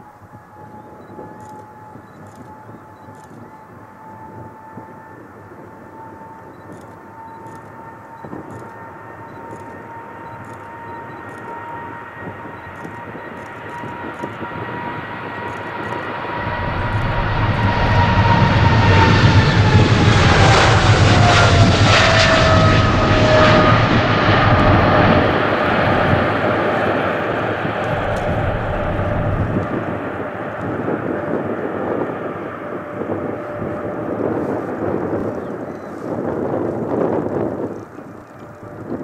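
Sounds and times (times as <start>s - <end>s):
jet engines at takeoff: 0.0s - 39.0s
high engine whine: 5.8s - 34.0s
deep rumble: 15.5s - 31.1s.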